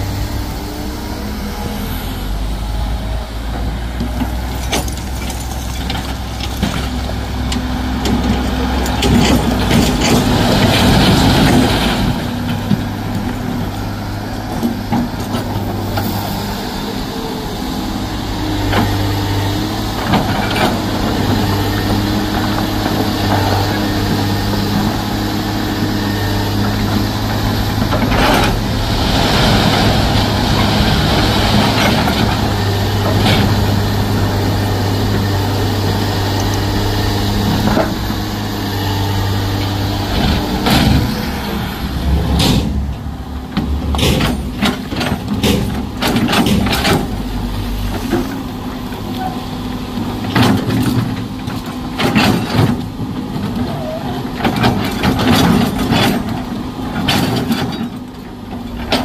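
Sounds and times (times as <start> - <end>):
truck diesel engine running: 0.0 - 50.3.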